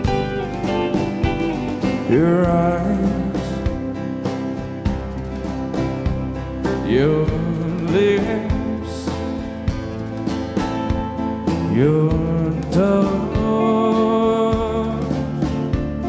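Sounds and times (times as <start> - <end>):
steady drumbeat: 0.0 - 16.0
strummed acoustic guitar: 0.0 - 16.0
man singing: 1.8 - 4.2, 6.8 - 9.5, 11.6 - 16.0.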